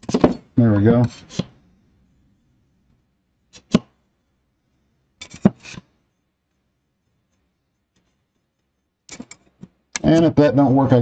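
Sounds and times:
spatula clicking and scraping: 1.0s - 1.6s, 5.2s - 5.9s, 7.2s - 10.4s.

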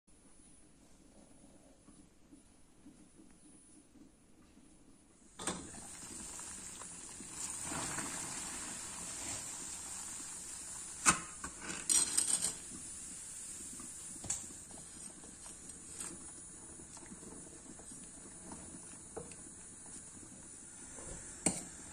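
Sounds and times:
water boiling in a pot: 4.0s - 21.9s.

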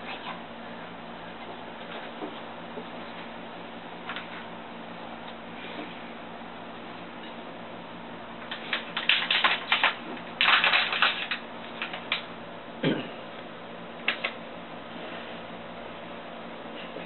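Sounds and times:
packet crinkling: 8.5s - 12.2s.

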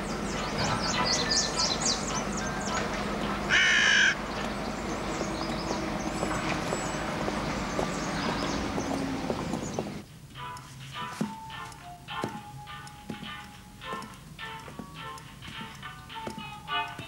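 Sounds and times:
small birds chirping: 0.0s - 10.0s
loud crow caw: 3.5s - 4.2s.

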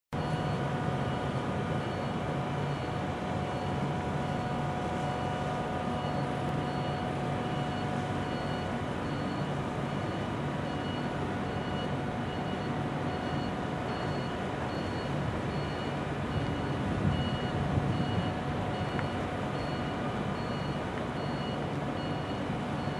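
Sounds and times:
constant whine: 0.1s - 22.9s
faint high beeps: 0.2s - 22.9s
vehicle cabin rumble: 0.2s - 22.9s.

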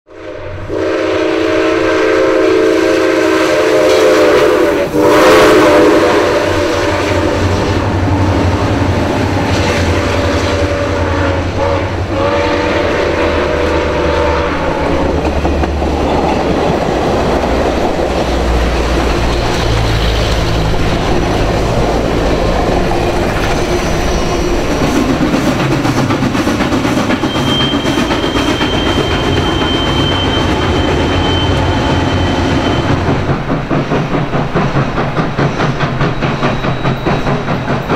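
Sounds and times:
locomotive whistle chord: 0.1s - 7.9s, 10.0s - 15.1s, 27.2s - 33.1s
train rumbling and clattering: 0.2s - 37.9s
thin high squeal: 27.2s - 33.0s.

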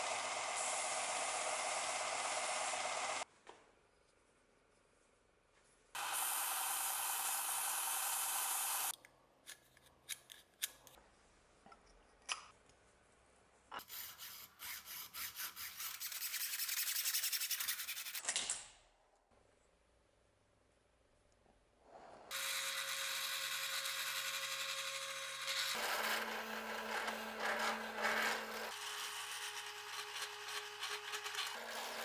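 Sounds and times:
bench sander whirring: 22.3s - 32.0s
hacksaw cutting metal tube: 22.3s - 32.0s.

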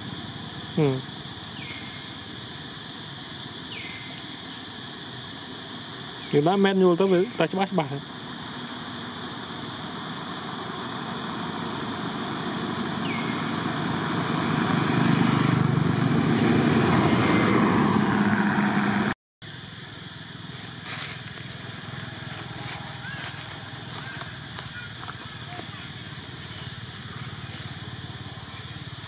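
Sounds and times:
motor vehicle passing close: 10.0s - 19.2s, 20.6s - 29.0s.

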